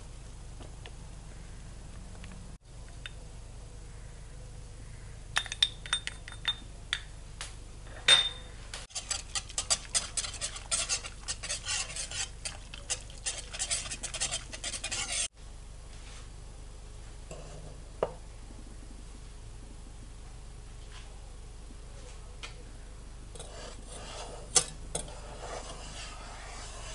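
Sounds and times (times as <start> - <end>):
whisk clattering in a metal pot: 8.9 - 15.3.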